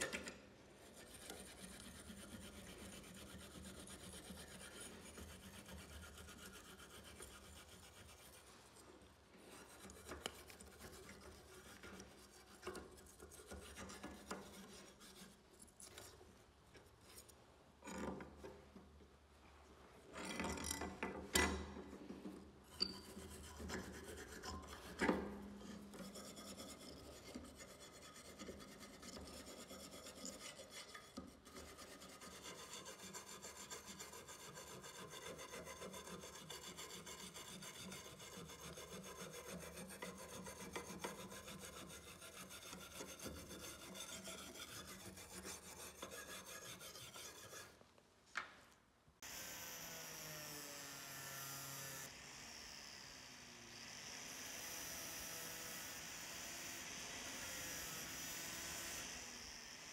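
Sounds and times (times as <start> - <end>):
wire brush scraping steel: 22.6 - 47.8.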